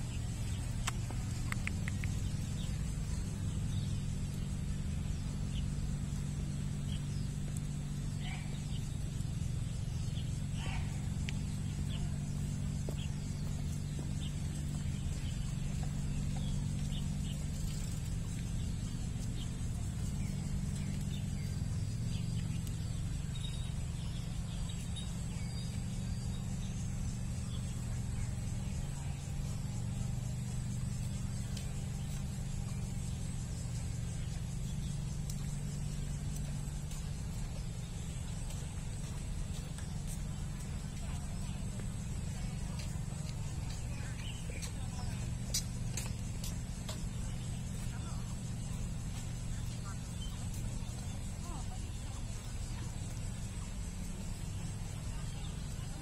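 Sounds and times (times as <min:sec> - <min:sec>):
bird chirps: 0:00.0 - 0:56.0
steady low hum: 0:00.0 - 0:56.0.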